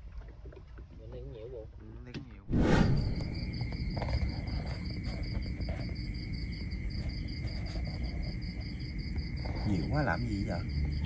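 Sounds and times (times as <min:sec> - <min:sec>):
low steady insect tone: 0:00.0 - 0:11.0
low rumble: 0:02.5 - 0:04.2
crickets chirring: 0:02.5 - 0:11.0.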